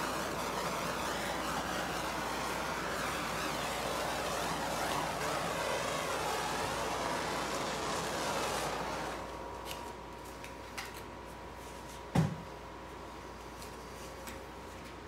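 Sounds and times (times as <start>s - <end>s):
torch flame hissing: 0.0s - 10.0s.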